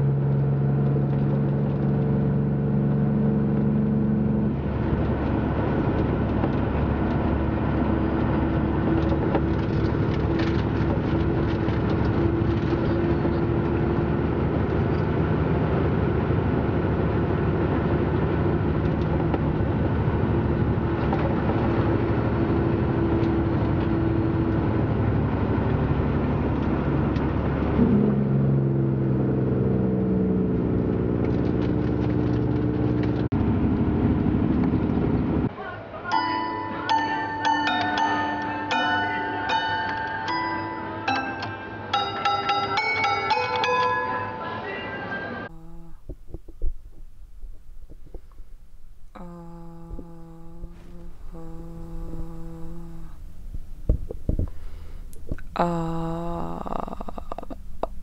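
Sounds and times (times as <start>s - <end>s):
vehicle engine droning: 0.0s - 36.2s, 37.7s - 58.0s.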